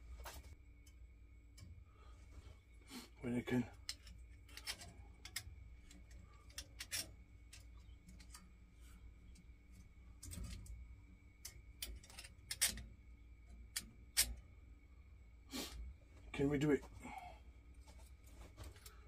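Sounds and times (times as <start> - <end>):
clicks and taps handling wires: 0.0 - 2.5, 3.7 - 14.4, 17.8 - 19.0
faint low hum: 0.0 - 19.0.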